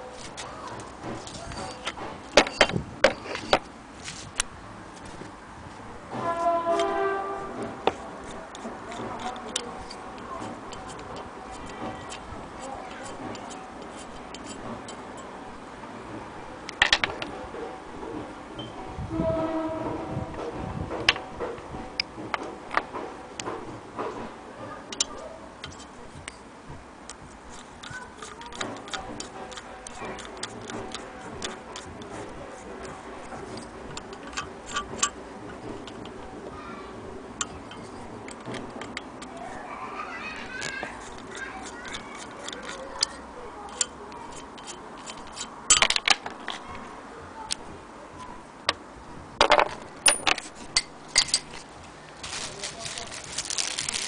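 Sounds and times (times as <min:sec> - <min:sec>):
screwdriver metal clicks and scrapes: 0:00.2 - 0:04.5, 0:07.8 - 0:15.4, 0:24.9 - 0:26.4, 0:27.1 - 0:36.3, 0:37.4 - 0:39.6, 0:40.6 - 0:46.6, 0:50.0 - 0:51.7.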